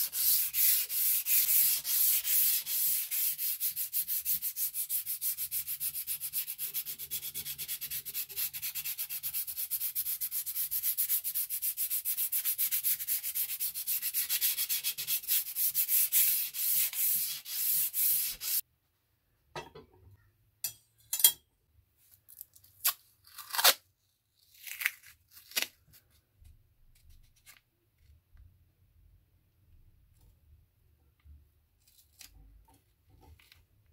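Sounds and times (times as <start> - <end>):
sandpaper rubbing steel blade: 0.0 - 18.6.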